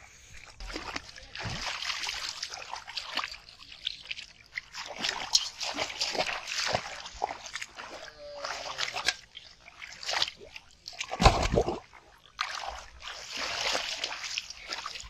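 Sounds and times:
hands splashing in muddy water: 0.4 - 15.0
loud deep splash: 11.0 - 14.1.

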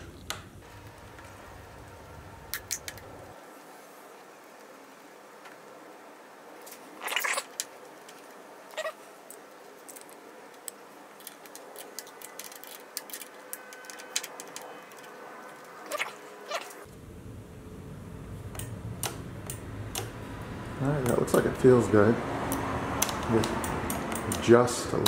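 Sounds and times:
low hum: 16.8 - 21.0
hand tool clicks and taps: 22.5 - 24.5.

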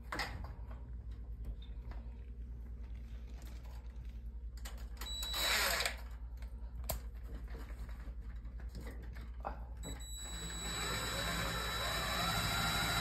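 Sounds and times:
cordless drill whining: 5.1 - 6.0, 10.0 - 13.0.

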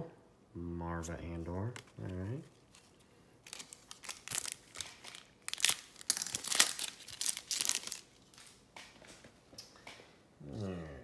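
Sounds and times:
wrapper crinkling and tearing: 1.8 - 8.6.

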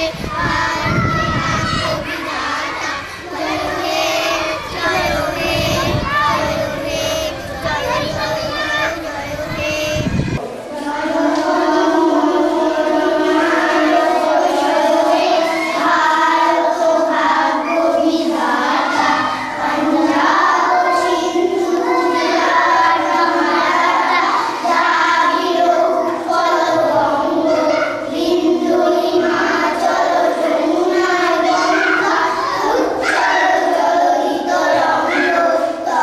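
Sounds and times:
children singing in unison: 0.0 - 36.0.

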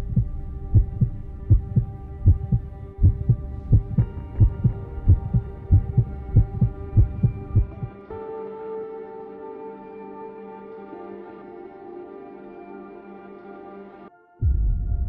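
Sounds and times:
heartbeat-like double thump: 0.0 - 7.9
steady held tones: 0.0 - 8.2.

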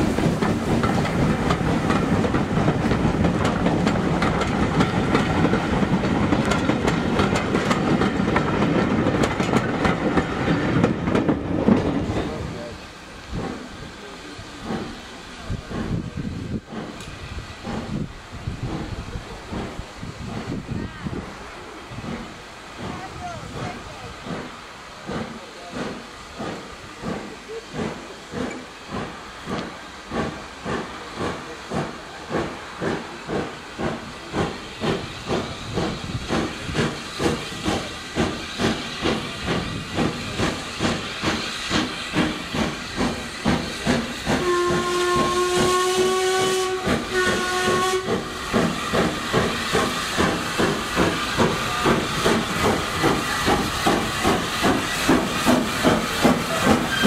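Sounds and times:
steam locomotive exhaust beats: 0.0 - 57.0
steam whistle blasts: 44.3 - 48.5, 56.6 - 57.0.

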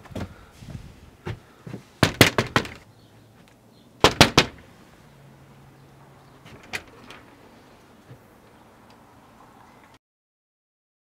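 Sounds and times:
knuckles knocking on glass door: 2.0 - 2.8.

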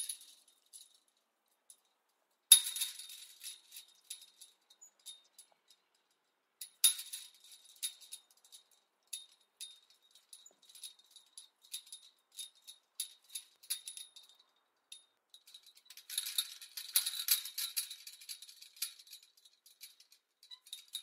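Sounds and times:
chain-link fence rattling: 2.5 - 21.0.

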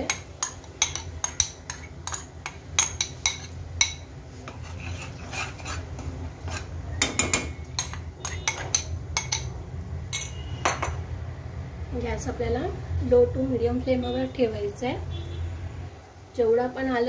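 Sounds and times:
spoon clinking on glass bowl: 0.0 - 4.1, 6.5 - 9.5, 10.1 - 11.0
spoon scraping a pan: 0.0 - 9.5.

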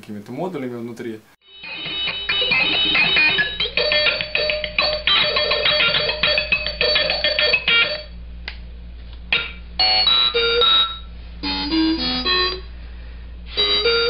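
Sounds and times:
glitchy electronic beeping tones: 1.6 - 5.5.

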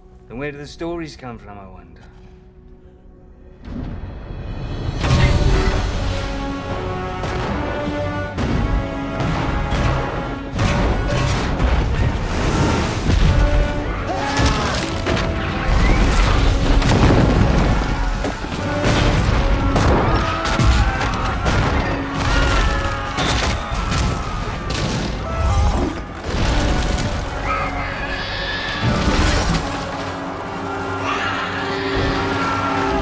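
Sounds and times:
orchestral score: 0.0 - 33.0
cannon booms and explosions: 14.4 - 27.3
people crying out in panic: 20.2 - 29.0, 30.0 - 33.0.

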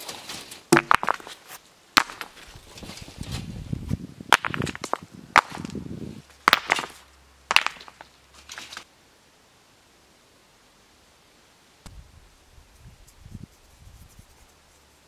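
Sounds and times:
wood chopping strikes: 0.7 - 1.4, 2.0 - 2.4, 4.3 - 5.8, 6.5 - 8.8.

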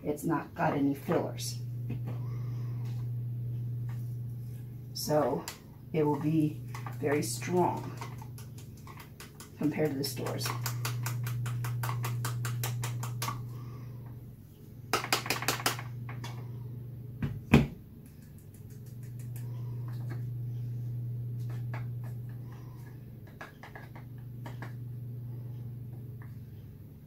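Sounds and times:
low hum: 0.4 - 14.9, 15.8 - 27.0
container tapping plastic funnel: 8.0 - 13.4, 14.9 - 15.9.

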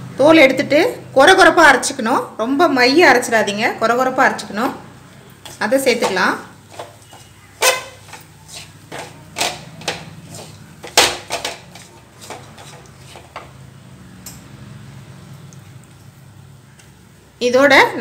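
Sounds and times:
wooden spatula scraping metal pan: 5.5 - 13.6.

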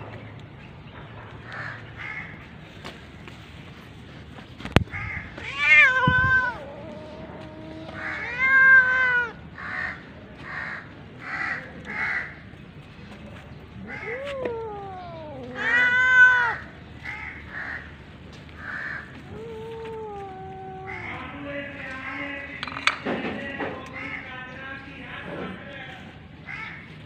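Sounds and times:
cat meowing: 4.9 - 9.4, 13.8 - 16.7, 18.6 - 21.4.

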